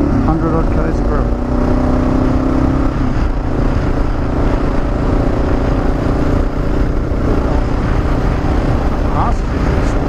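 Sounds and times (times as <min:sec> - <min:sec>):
motorcycle engine cruising: 0:00.0 - 0:10.0
wind rush: 0:00.0 - 0:10.0.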